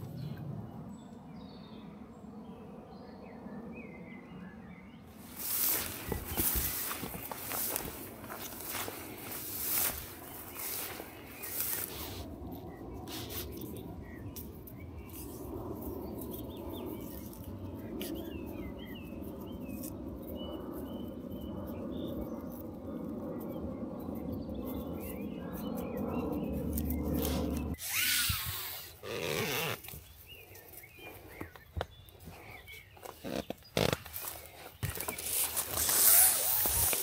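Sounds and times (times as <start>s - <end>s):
steady low rush: 0.0s - 27.8s
small birds chirping: 3.0s - 37.0s.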